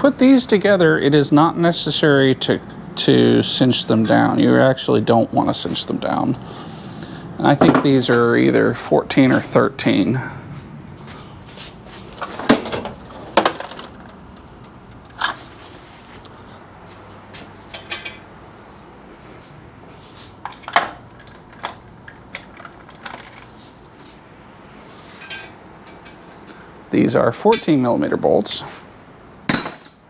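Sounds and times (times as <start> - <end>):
metal tools clinking: 12.1 - 14.2, 25.2 - 26.4, 29.5 - 30.0.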